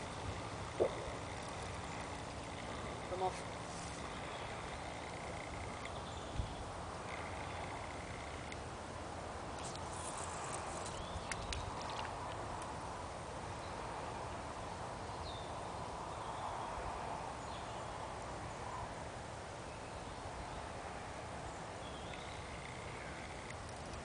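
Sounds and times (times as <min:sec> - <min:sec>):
outdoor background hiss: 0:00.0 - 0:24.0
faint bird chirps: 0:21.8 - 0:23.6.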